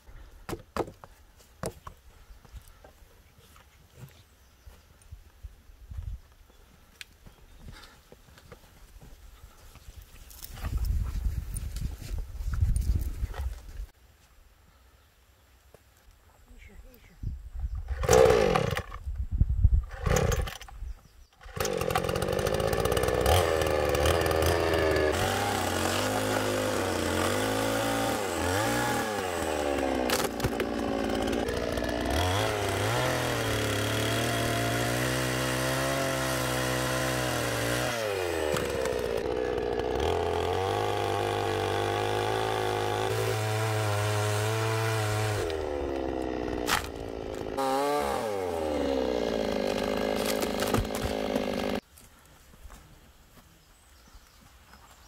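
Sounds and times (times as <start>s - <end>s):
chainsaw cutting branches: 17.8s - 19.0s, 19.8s - 20.8s, 21.4s - 51.9s.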